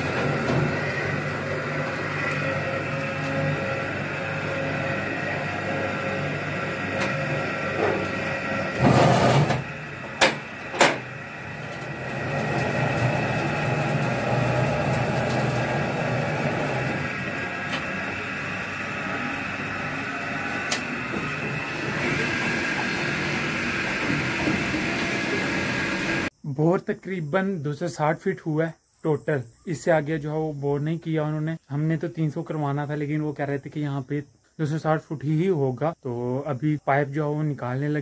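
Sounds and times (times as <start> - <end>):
drilling rig motor running: 0.0 - 26.3
metal clanks of drill pipe: 8.8 - 11.9.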